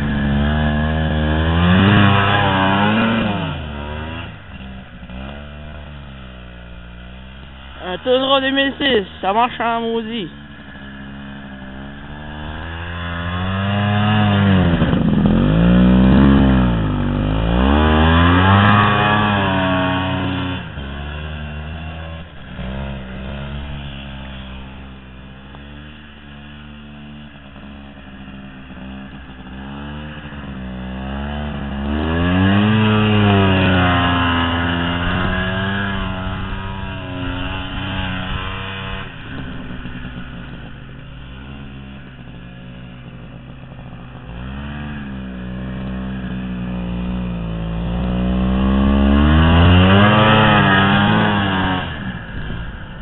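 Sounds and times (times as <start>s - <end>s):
snowmobile engine revving: 0.0s - 53.0s.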